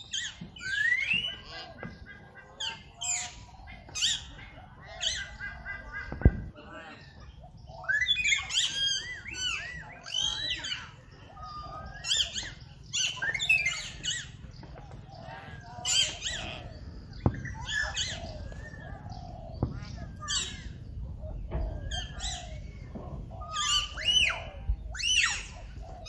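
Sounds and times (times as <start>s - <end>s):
small birds chirping: 0.0s - 26.0s
steady low rumble: 13.9s - 26.0s.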